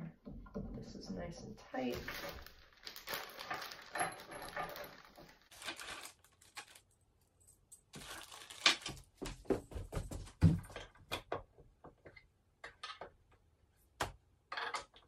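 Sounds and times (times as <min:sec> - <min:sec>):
rustling handling noise: 0:01.7 - 0:09.6
metallic clinks and knocks: 0:02.0 - 0:05.2.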